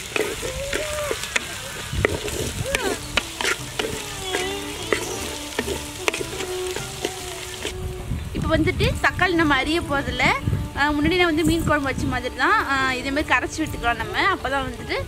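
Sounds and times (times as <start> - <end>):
chirping calls: 0.0 - 7.8
wooden spatula scraping pot: 0.0 - 7.8
shallots sizzling in hot oil: 0.0 - 15.0.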